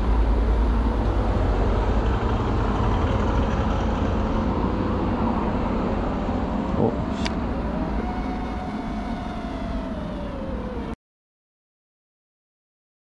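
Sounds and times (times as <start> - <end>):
drone motors whining: 5.1 - 11.0.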